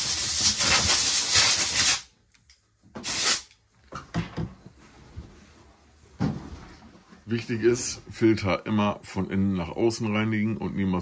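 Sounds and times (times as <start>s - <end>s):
hissing spray bursts: 0.0s - 2.1s, 3.0s - 3.5s.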